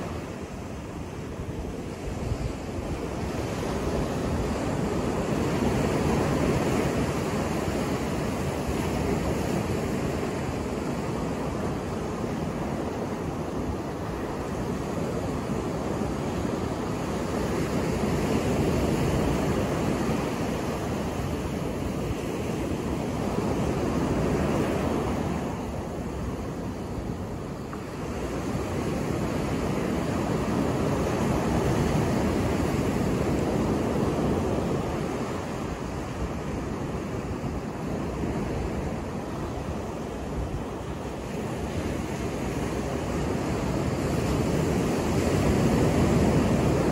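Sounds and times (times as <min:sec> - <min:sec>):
ocean surf breaking on beach: 0:00.0 - 0:46.9.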